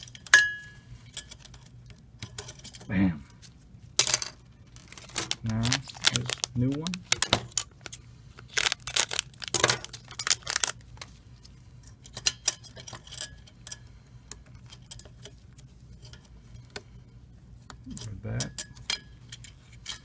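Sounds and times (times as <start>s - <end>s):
low steady hum: 0.0s - 20.0s
plastic bag crinkling: 4.7s - 11.1s.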